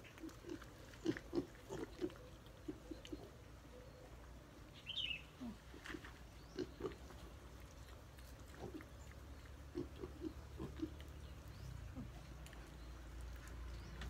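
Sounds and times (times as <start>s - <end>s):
piglets grunting: 0.0s - 3.3s, 5.4s - 7.2s, 8.5s - 11.2s.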